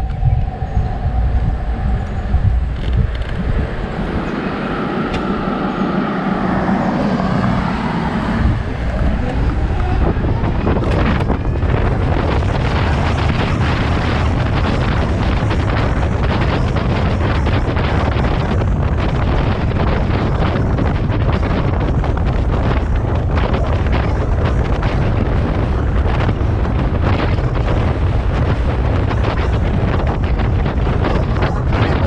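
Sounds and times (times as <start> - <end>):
road rumble: 0.0 - 32.0
wind rushing over microphone: 0.0 - 32.0
car passing by: 1.7 - 14.2.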